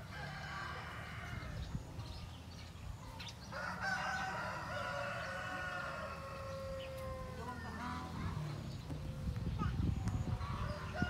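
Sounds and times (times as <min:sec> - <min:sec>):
rooster crowing: 0:00.0 - 0:01.6, 0:03.5 - 0:08.3
low rumble of wind: 0:00.0 - 0:11.0.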